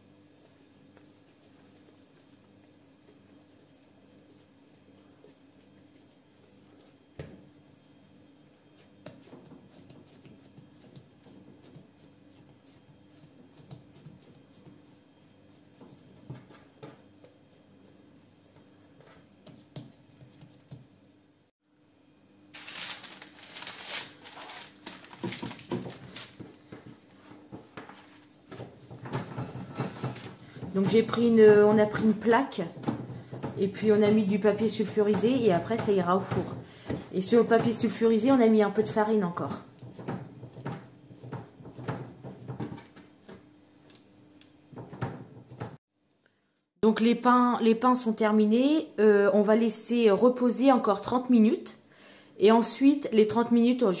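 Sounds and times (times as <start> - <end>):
hands patting bread dough: 0.3 - 21.3, 22.6 - 45.8
parchment paper crinkling: 22.5 - 26.5
baking paper rustling: 22.5 - 43.4.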